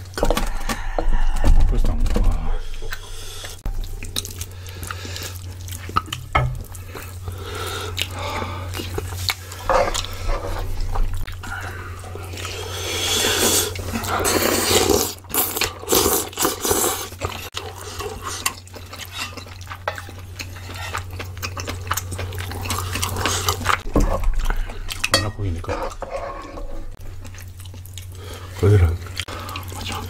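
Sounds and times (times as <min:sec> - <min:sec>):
steady low hum: 0:00.0 - 0:15.9
wet chewing and slurping: 0:02.6 - 0:30.0
utensils scraping metal pan: 0:25.2 - 0:27.0.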